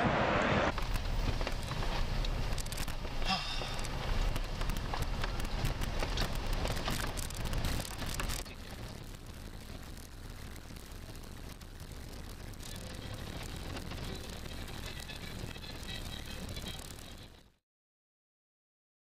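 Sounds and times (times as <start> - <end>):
car road noise on gravel: 0.0 - 17.6
stones clicking and rattling: 0.7 - 9.0.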